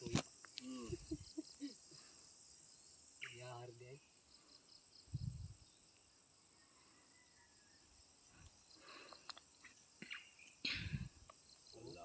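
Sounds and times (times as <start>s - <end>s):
insects chirring: 0.0s - 12.0s
faint clicks: 8.4s - 9.5s.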